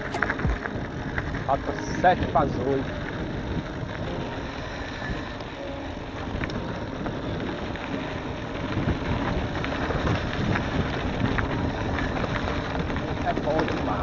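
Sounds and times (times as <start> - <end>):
bicycle tyres rumbling on dirt: 0.0 - 14.0
wind buffeting microphone: 0.0 - 14.0
faint clicks of gravel: 6.2 - 14.0.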